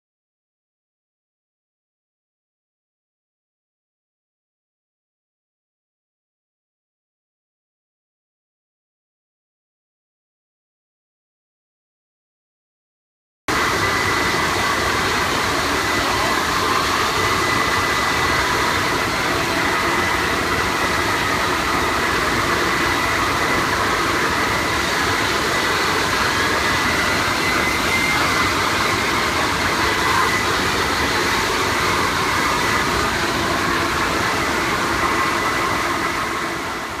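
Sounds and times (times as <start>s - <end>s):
electric grooming vacuum running: 13.5s - 37.0s.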